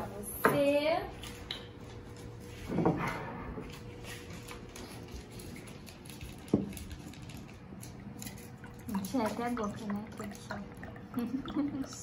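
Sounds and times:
juice pouring into mug: 7.6s - 12.0s.

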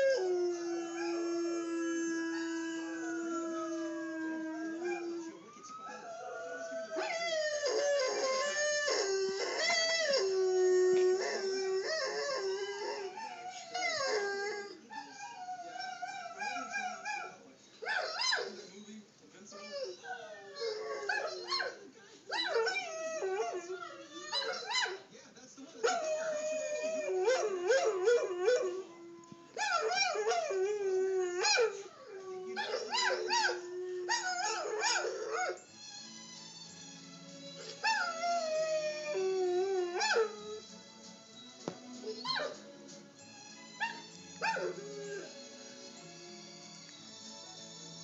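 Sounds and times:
dog howling: 0.0s - 18.6s, 19.5s - 25.0s, 25.8s - 35.6s, 37.8s - 40.6s, 43.8s - 45.3s.

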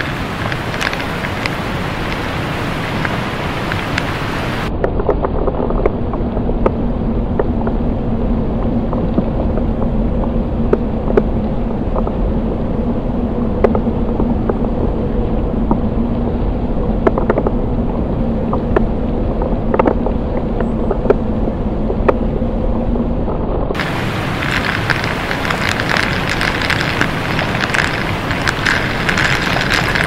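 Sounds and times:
waterfall rushing: 0.0s - 4.7s, 23.8s - 30.0s
faint steady hum: 0.0s - 30.0s.

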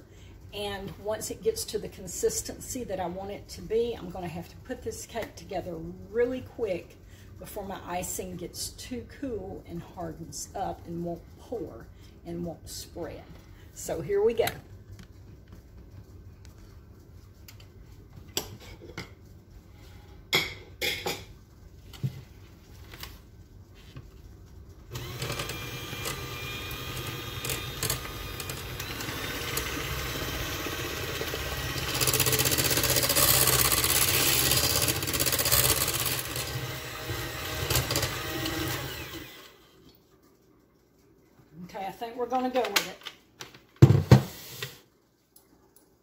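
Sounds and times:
electric hand mixer whirring: 24.9s - 39.6s.

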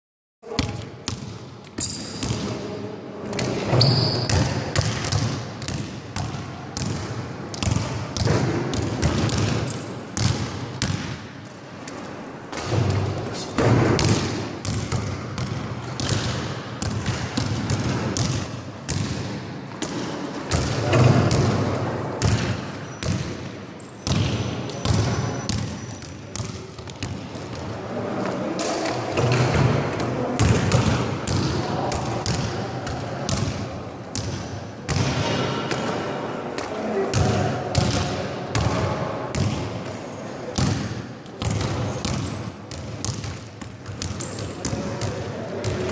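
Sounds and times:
basketball bouncing on court floor: 0.5s - 2.6s, 3.3s - 11.2s, 12.5s - 27.6s, 37.1s - 39.6s, 40.6s - 45.9s.

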